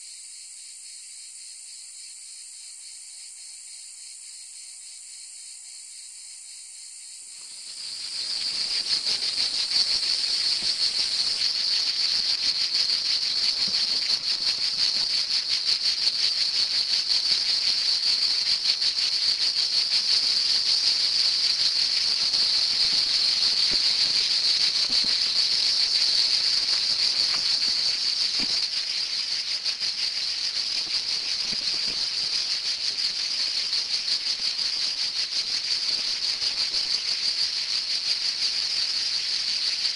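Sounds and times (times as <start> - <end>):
cicadas droning: 0.0 - 39.9.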